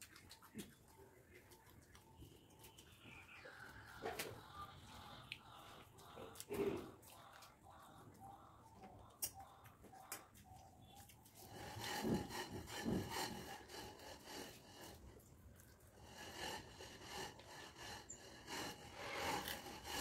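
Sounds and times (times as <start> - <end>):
chewing: 0.0 - 20.0
rough scraping on a plate: 11.4 - 15.0, 16.0 - 20.0.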